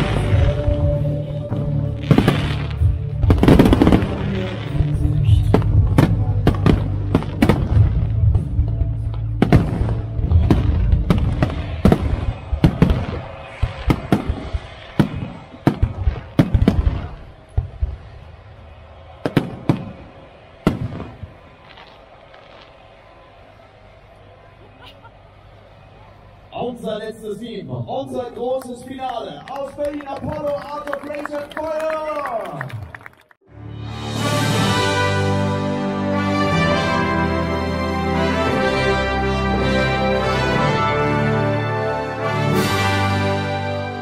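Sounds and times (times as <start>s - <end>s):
music: 0.0s - 15.8s, 33.4s - 44.0s.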